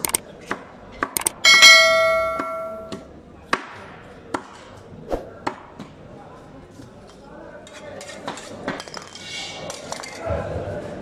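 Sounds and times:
quick clicks: 0:00.0 - 0:00.2, 0:01.0 - 0:01.4
bell ding: 0:01.4 - 0:03.0.

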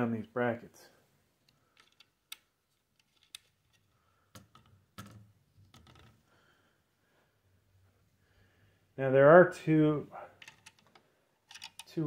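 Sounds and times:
small metal parts clicking: 0:01.5 - 0:05.1, 0:10.4 - 0:12.0.

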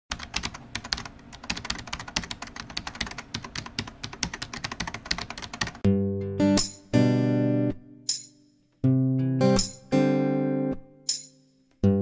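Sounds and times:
strummed guitar music: 0:05.8 - 0:08.2, 0:08.8 - 0:12.0.

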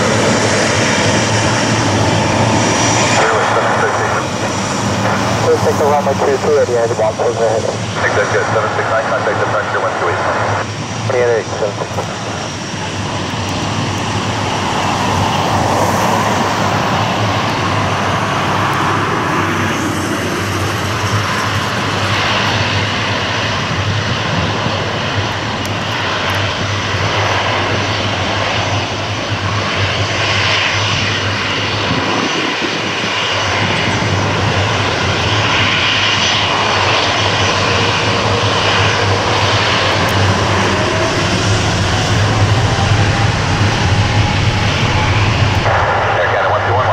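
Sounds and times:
jet engines at taxi power: 0:00.0 - 0:46.9.

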